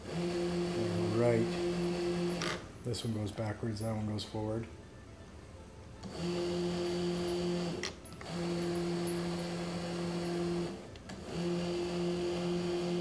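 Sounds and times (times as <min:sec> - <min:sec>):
electric gear motor hum: 0:00.0 - 0:02.7, 0:06.0 - 0:13.0.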